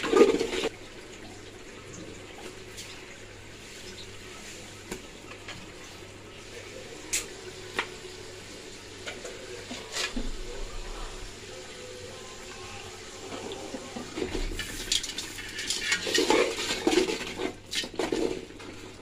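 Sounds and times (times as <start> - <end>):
oil sizzling in a metal pot: 11.2 - 19.0.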